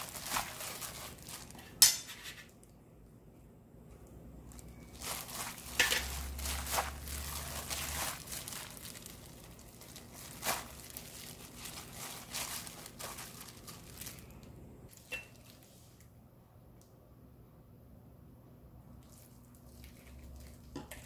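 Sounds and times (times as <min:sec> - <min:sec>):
plastic glove crinkling: 0:00.0 - 0:02.8, 0:04.4 - 0:16.1, 0:19.0 - 0:20.8.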